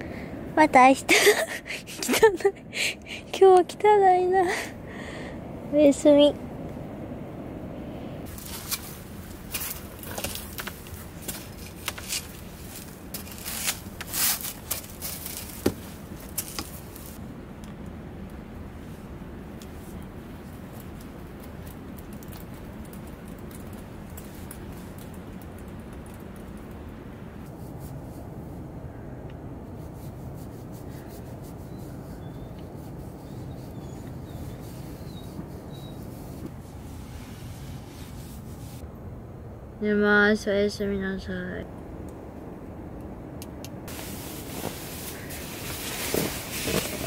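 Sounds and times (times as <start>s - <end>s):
steady low rumble: 0.0s - 47.0s
tent fabric rustling: 8.2s - 17.2s, 43.9s - 47.0s
tissue rubbing on face: 29.8s - 38.8s, 43.9s - 47.0s.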